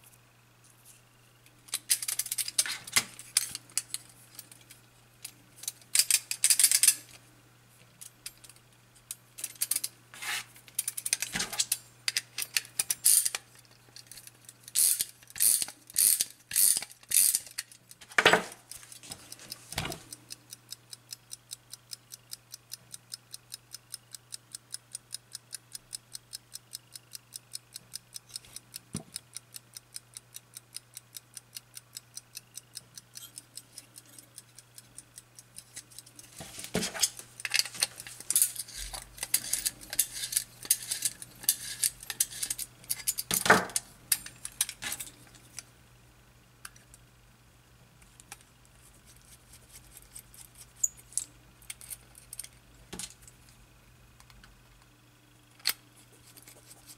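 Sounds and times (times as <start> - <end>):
clock ratchet clicking: 14.1 - 18.0, 20.1 - 36.3, 37.0 - 43.4.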